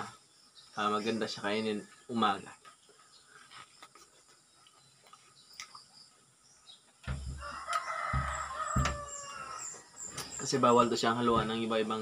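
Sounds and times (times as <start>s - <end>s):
low thumps: 7.0s - 9.3s
rooster crowing: 7.2s - 10.0s.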